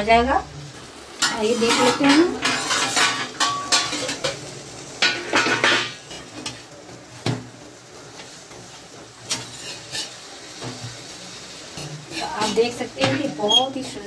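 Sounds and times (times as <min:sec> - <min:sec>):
metal spatula scraping iron griddle: 0:01.2 - 0:04.4, 0:05.0 - 0:06.6, 0:09.2 - 0:10.8, 0:11.7 - 0:14.0.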